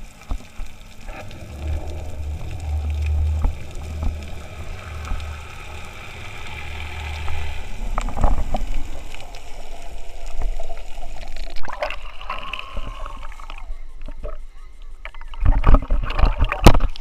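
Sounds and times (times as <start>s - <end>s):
low hum: 0.0s - 11.4s
underwater air bubbles gurgling: 0.0s - 13.8s.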